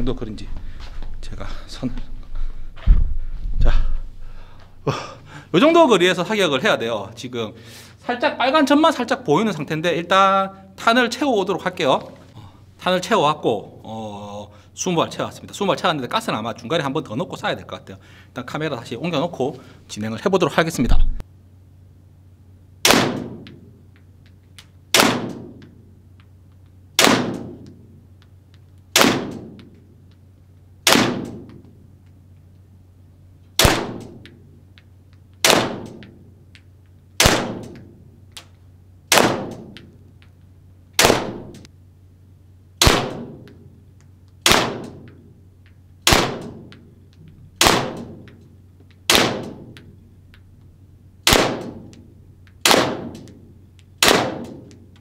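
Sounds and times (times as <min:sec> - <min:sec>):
airsoft pistol shots: 0:22.8 - 0:23.6, 0:24.9 - 0:25.6, 0:27.0 - 0:27.7, 0:28.9 - 0:29.7, 0:30.8 - 0:31.6, 0:33.6 - 0:34.3, 0:35.4 - 0:36.1, 0:37.2 - 0:37.9, 0:39.1 - 0:39.8, 0:41.0 - 0:41.6, 0:42.8 - 0:43.5, 0:44.4 - 0:45.1, 0:46.0 - 0:46.8, 0:47.6 - 0:48.3, 0:49.1 - 0:49.8, 0:51.2 - 0:52.0, 0:52.6 - 0:53.3, 0:54.0 - 0:54.7.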